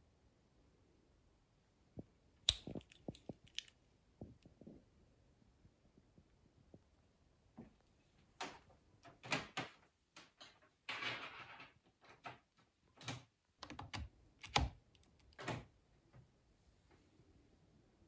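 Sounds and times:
cables clicking and knocking: 2.5s - 4.5s.

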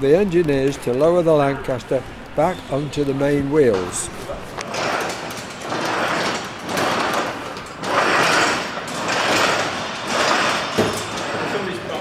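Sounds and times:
metal stand scraping on concrete: 4.6s - 12.0s.

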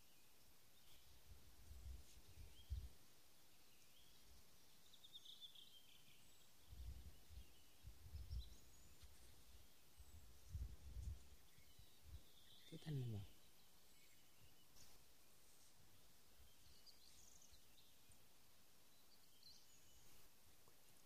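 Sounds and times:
wind rumble on microphone: 1.3s - 3.0s, 6.6s - 12.4s.

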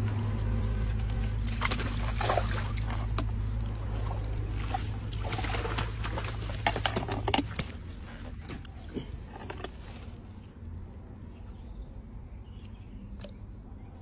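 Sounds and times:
steady low hum: 0.0s - 14.0s
water splashing: 0.9s - 9.4s.

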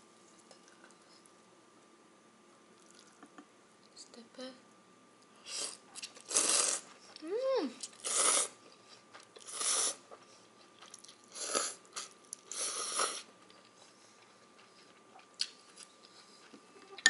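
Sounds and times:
chewing: 2.8s - 3.3s, 7.8s - 17.0s
noodles slurped: 5.5s - 6.9s, 7.8s - 8.6s.

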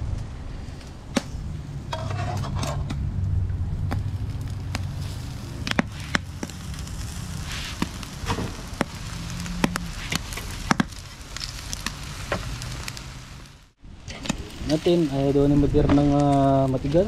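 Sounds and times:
charcoal fire crackling: 0.0s - 17.0s
sharp pops: 5.6s - 6.8s, 7.4s - 13.0s.

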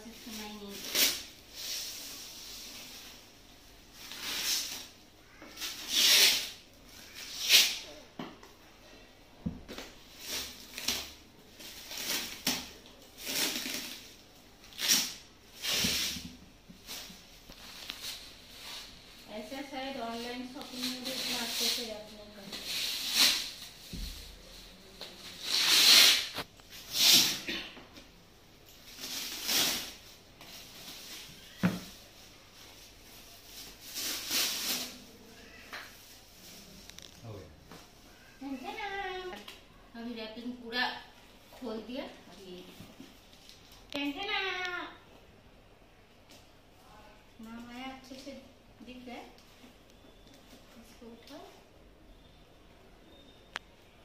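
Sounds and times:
plastic wrap crinkling: 9.7s - 27.6s, 28.7s - 37.4s.

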